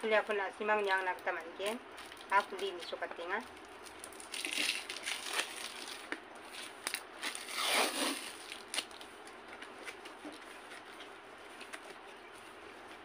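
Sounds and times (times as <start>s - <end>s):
tape and cardboard tearing: 4.3s - 6.0s, 6.6s - 9.0s.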